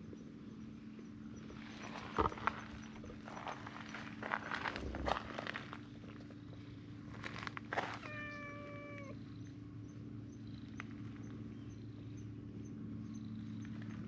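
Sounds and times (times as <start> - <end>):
cat meowing: 8.0 - 9.2.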